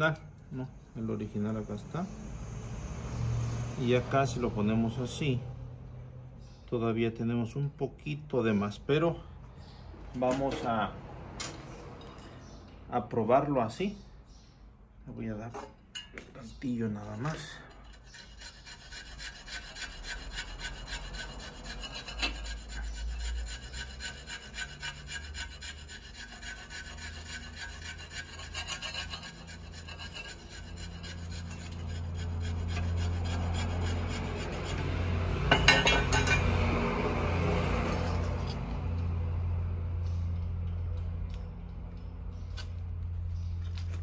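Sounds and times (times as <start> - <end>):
hand file scraping: 16.8 - 39.0.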